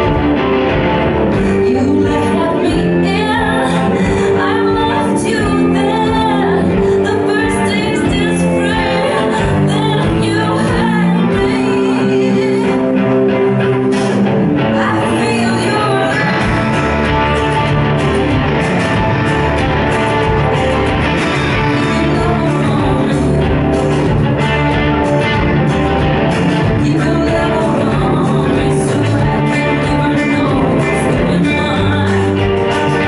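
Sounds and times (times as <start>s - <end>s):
bass guitar: 0.0s - 33.0s
electric guitar: 0.0s - 33.0s
woman singing: 1.3s - 13.8s, 14.6s - 16.7s, 21.3s - 24.2s, 26.5s - 33.0s.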